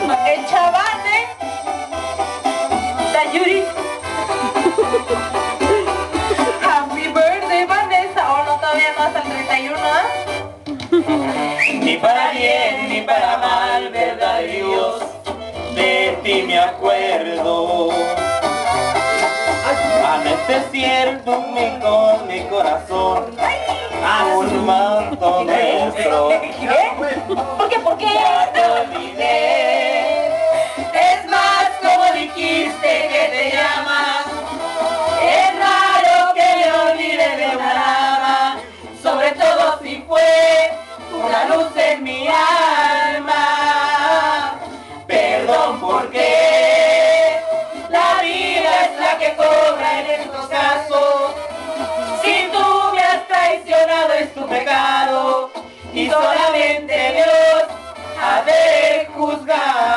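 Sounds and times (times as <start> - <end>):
man and woman singing: 11.0 - 18.2, 19.7 - 59.9.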